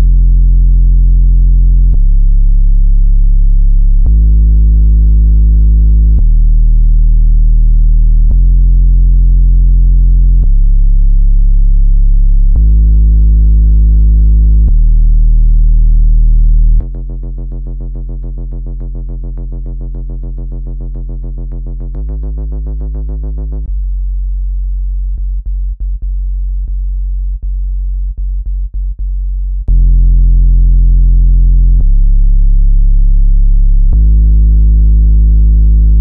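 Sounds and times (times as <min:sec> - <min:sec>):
low-pitched synthesized buzzing tones: 0:00.0 - 0:36.0.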